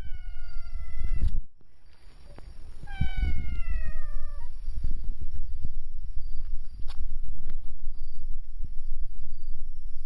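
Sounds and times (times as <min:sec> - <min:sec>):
cat meowing: 0:00.0 - 0:01.4, 0:02.8 - 0:04.6
rustling: 0:00.0 - 0:09.0.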